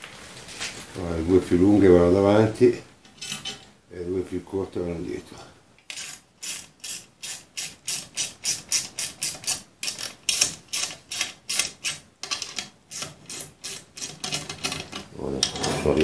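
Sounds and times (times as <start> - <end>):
screws scraping through steel: 3.1 - 3.7, 5.9 - 16.0.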